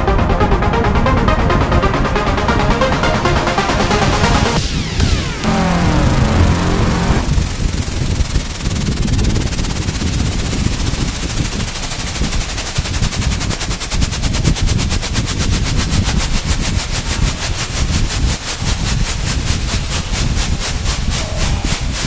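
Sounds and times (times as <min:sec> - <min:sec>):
trail rumble: 0:00.0 - 0:11.5
wind on microphone: 0:07.4 - 0:22.0.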